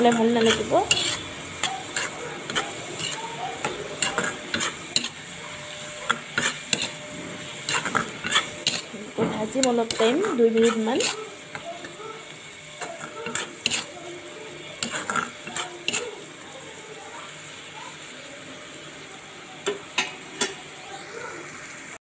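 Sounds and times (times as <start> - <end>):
metal spatula scraping iron pan: 0.0 - 5.3, 6.1 - 11.3, 12.9 - 14.0
vegetables sizzling: 0.0 - 22.0.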